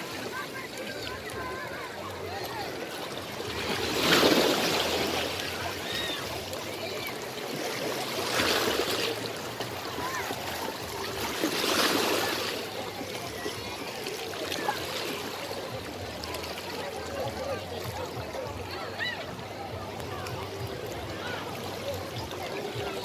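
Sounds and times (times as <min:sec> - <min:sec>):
small waves washing over rocks: 0:00.0 - 0:17.0.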